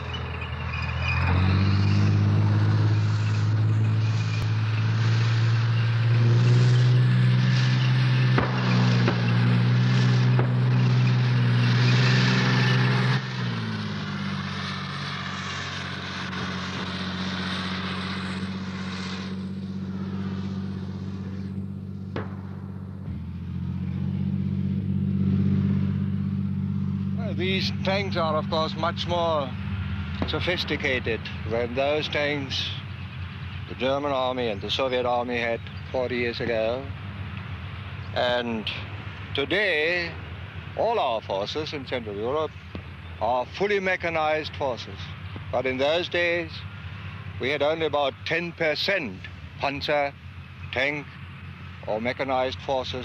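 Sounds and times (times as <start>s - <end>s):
tank engines droning: 0.0s - 53.0s.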